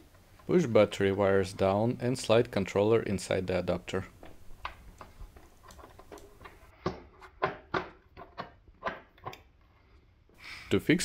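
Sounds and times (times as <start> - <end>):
plastic knocks and clicks: 4.2 - 9.5.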